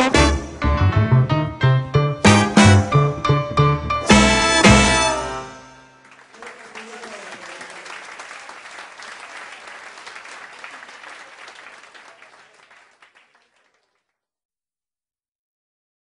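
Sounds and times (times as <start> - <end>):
audience applauding: 6.0 - 14.1.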